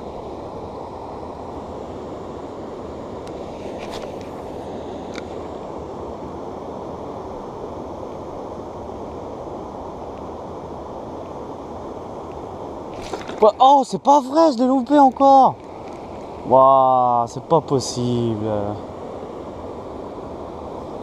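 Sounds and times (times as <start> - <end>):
water running over a weir: 12.8 - 18.7.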